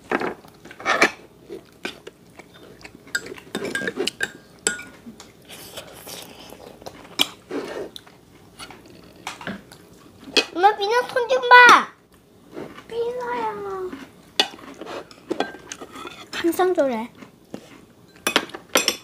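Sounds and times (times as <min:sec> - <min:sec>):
chewing: 0:00.4 - 0:04.3, 0:05.0 - 0:10.3, 0:12.5 - 0:16.4
forks clinking on plates: 0:03.1 - 0:05.0, 0:18.1 - 0:19.0.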